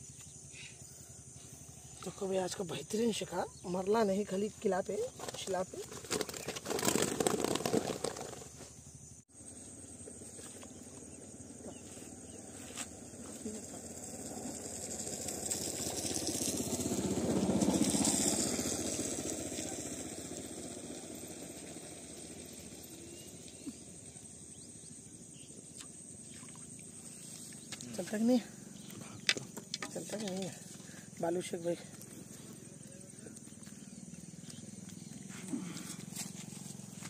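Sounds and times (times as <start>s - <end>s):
vehicle engine passing: 13.7s - 23.5s.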